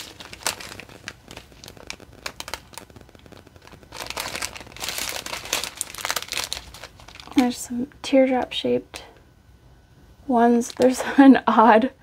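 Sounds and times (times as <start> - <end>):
plastic bags crinkling: 0.0 - 7.7, 10.6 - 11.1.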